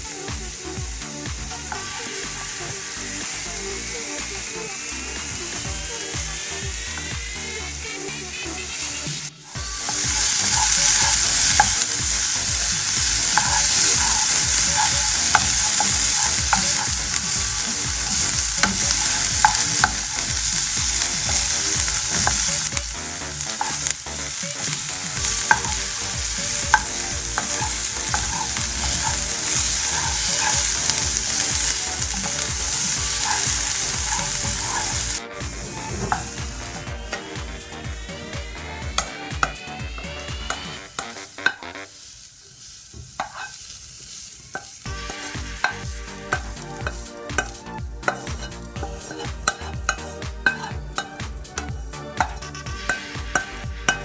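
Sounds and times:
onion sizzling in a frying pan: 0:00.0 - 0:54.0
spatula scraping and tapping pan: 0:09.8 - 0:35.2, 0:42.9 - 0:43.7, 0:44.5 - 0:54.0.

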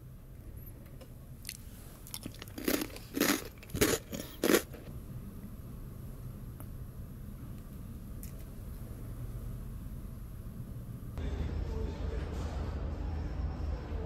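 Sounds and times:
crunching potato snack: 0:01.4 - 0:04.9.

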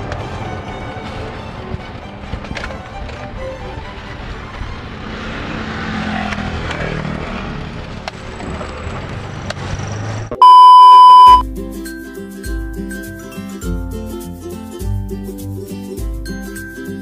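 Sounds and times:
street traffic: 0:00.0 - 0:11.4
high-pitched electronic beep: 0:10.4 - 0:11.4.

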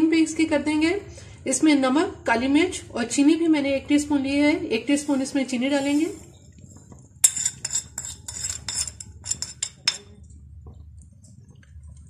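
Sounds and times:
plate clinking on metal pot: 0:07.2 - 0:10.2.

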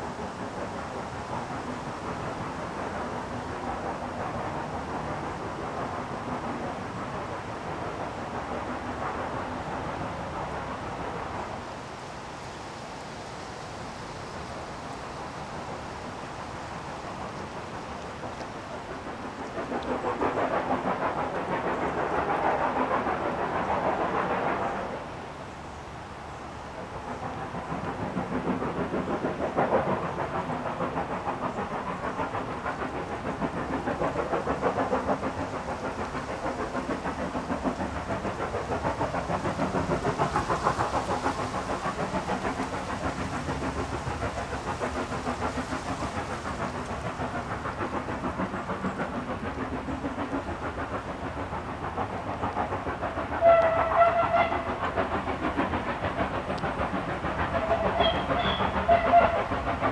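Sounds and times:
steam locomotive chuffing: 0:00.0 - 0:12.0, 0:13.2 - 0:59.9
steam whistle blasts: 0:53.4 - 0:54.7, 0:57.7 - 0:59.5.

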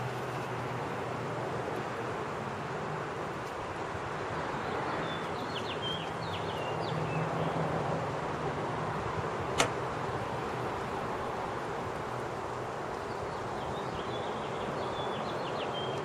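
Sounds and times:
outdoor background noise: 0:00.0 - 0:16.0
small bird chirping: 0:04.6 - 0:07.6
sharp click: 0:09.6 - 0:09.8.

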